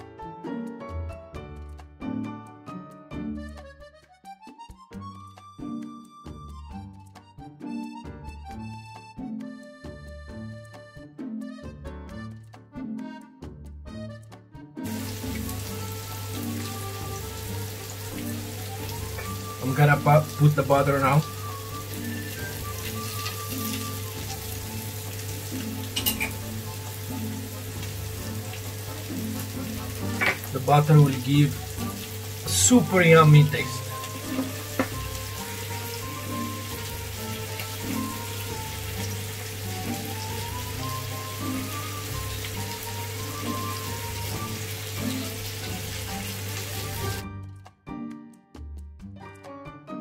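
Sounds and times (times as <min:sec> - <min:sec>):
light instrumental music: 0:00.0 - 0:50.0
food sizzling in a frying pan: 0:14.8 - 0:47.2.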